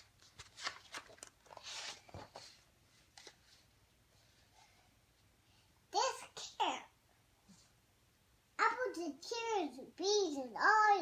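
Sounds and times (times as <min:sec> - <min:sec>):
book pages rustling: 0:00.0 - 0:03.8
papery swish of page turn: 0:00.2 - 0:02.5.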